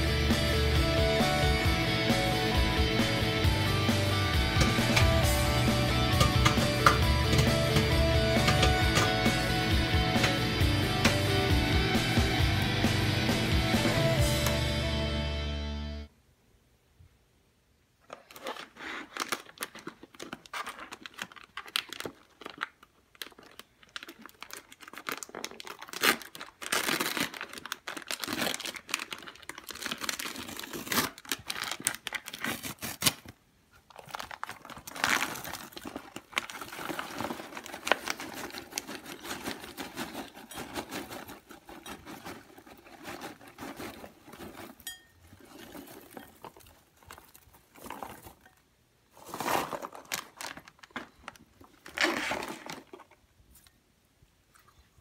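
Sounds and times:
packaging crinkling: 18.0s - 53.7s.

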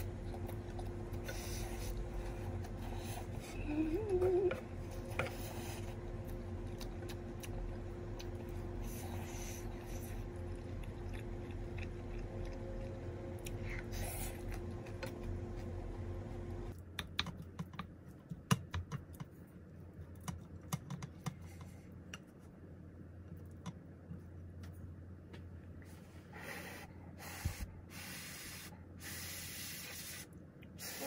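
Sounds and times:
steady hum: 0.0s - 16.8s.

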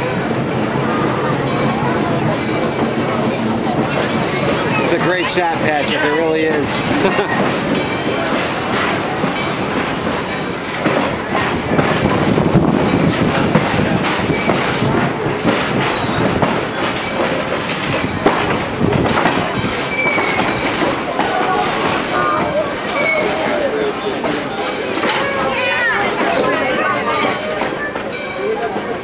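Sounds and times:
train wheels clattering over rail joints: 0.1s - 29.0s
wheel squeal: 14.1s - 17.4s, 19.6s - 20.9s, 22.3s - 23.6s.

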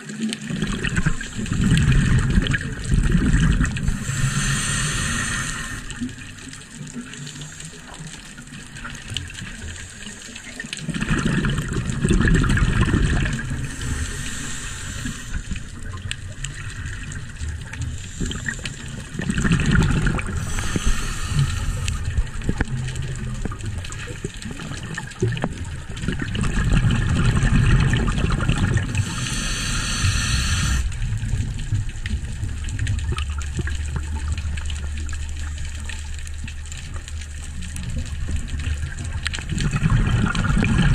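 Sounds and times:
gurgle of exhaled bubbles: 0.0s - 40.9s
regulator hissing inhale: 3.7s - 8.3s, 13.5s - 19.2s, 20.1s - 22.6s, 28.8s - 31.0s.

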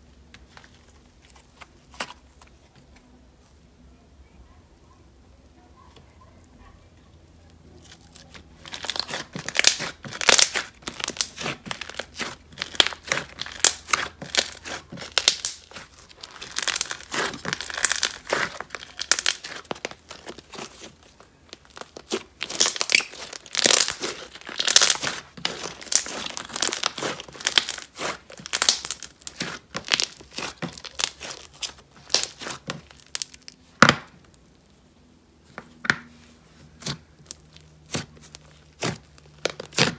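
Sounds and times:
slime crunching and popping: 7.7s - 34.6s, 36.8s - 39.9s.

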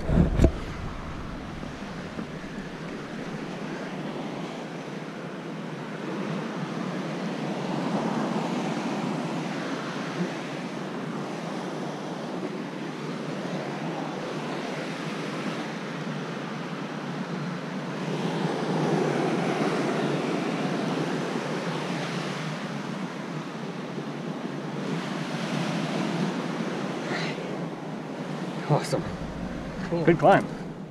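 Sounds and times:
wind on microphone: 0.0s - 3.8s, 27.7s - 30.9s
ocean surf against cliff: 0.0s - 4.2s, 25.3s - 30.9s.

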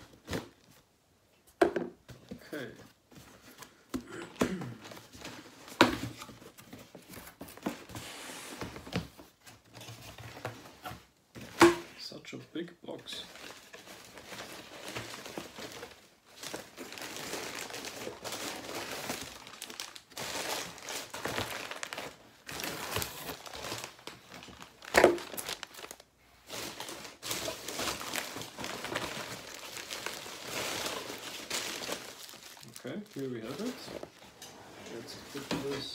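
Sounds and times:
packing material crinkling: 13.1s - 34.2s.

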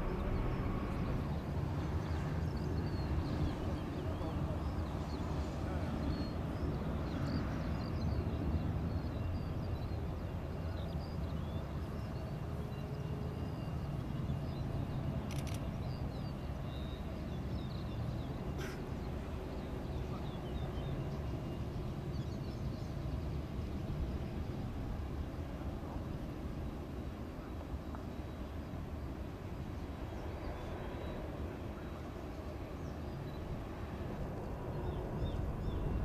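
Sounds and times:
jet engines rumbling: 0.0s - 36.0s
short clicks: 15.3s - 15.7s.

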